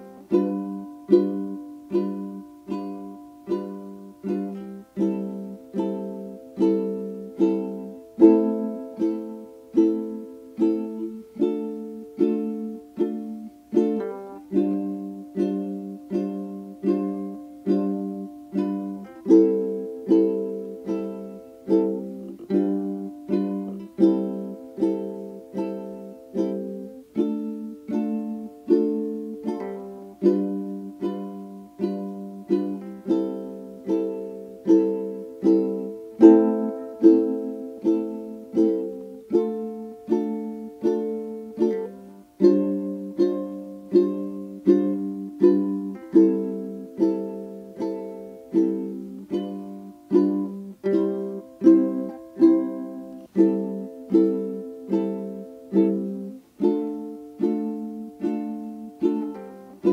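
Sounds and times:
plucked string instrument chords: 0.0s - 59.9s.

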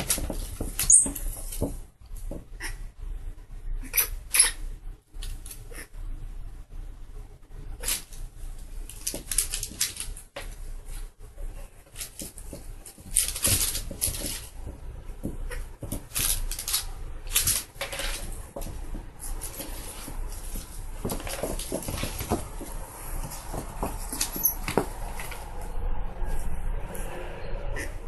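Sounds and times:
monkey scampering on wooden floor: 0.0s - 2.4s, 8.8s - 25.6s.

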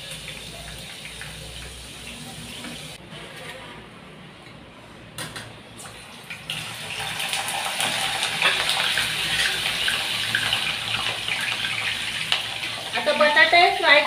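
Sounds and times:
deep-frying sizzle: 0.0s - 3.0s, 5.8s - 14.0s.

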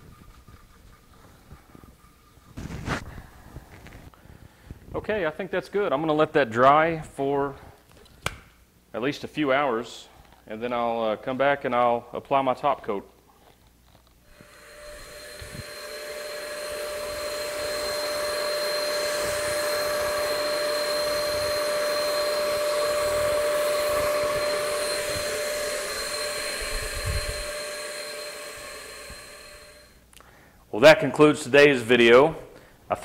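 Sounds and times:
spray system turbine whine: 14.3s - 30.1s.

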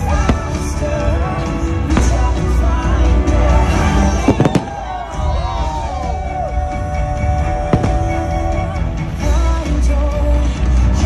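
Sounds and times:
firework bangs: 0.0s - 5.7s, 7.5s - 8.8s
music over loudspeakers: 0.0s - 11.0s.

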